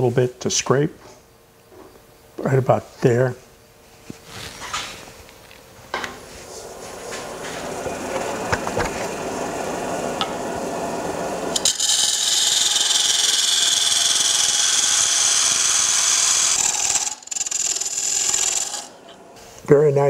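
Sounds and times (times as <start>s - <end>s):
wood lathe spinning: 6.4s - 19.3s.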